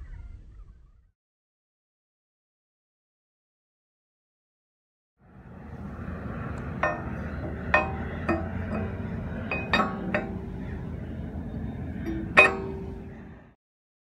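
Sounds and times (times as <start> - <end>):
iron shackle clanking on anchor: 6.4 - 13.4.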